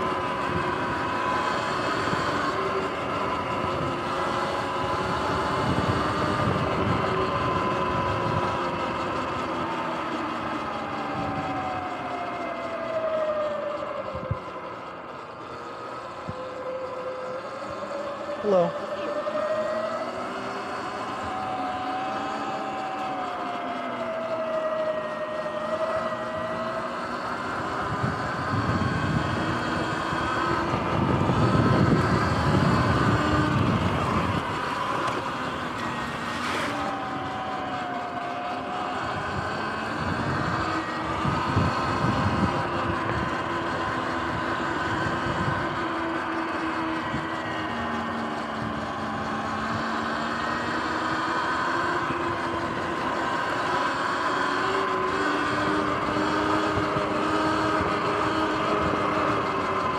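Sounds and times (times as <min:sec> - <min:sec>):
electric motor whining: 0:00.0 - 0:59.9
wind on microphone: 0:04.8 - 0:09.0, 0:27.7 - 0:35.3, 0:39.0 - 0:46.2.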